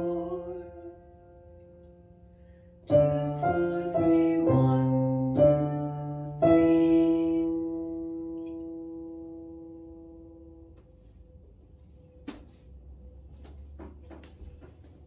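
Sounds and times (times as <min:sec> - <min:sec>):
synthesizer chord: 0:00.0 - 0:10.9.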